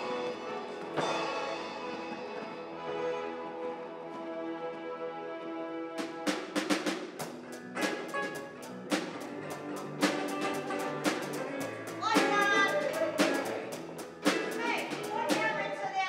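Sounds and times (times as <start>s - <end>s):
rock band music: 0.0s - 3.6s, 6.0s - 15.6s
loud drum hits: 6.4s - 15.4s
sliding lead voice: 9.4s - 15.8s.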